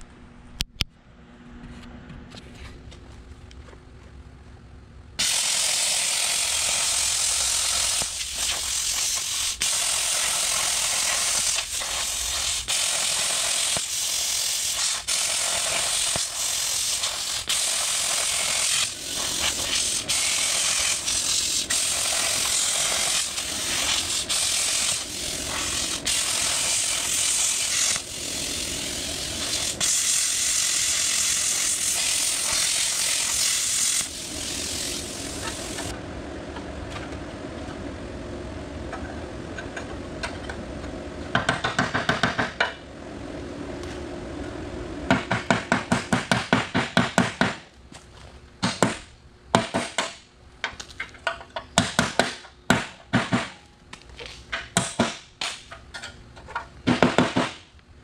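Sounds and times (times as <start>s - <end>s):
power tool cutting steel: 5.2s - 35.9s.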